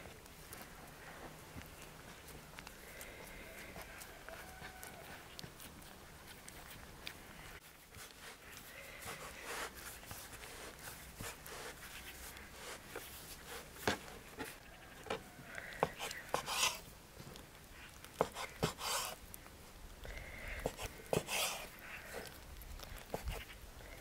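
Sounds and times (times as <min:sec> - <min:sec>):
dough rubbing and sliding: 0:07.5 - 0:15.2, 0:15.8 - 0:16.9, 0:18.0 - 0:19.3, 0:20.6 - 0:22.4
knife cutting dough: 0:15.8 - 0:16.8, 0:18.2 - 0:19.2, 0:20.7 - 0:21.7.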